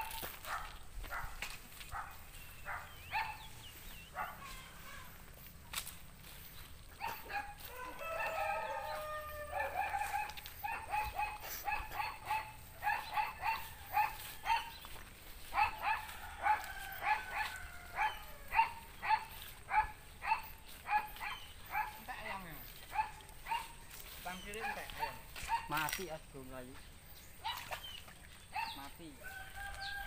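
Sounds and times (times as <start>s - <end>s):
rooster crowing: 7.6s - 10.1s, 15.9s - 19.0s, 29.2s - 30.0s.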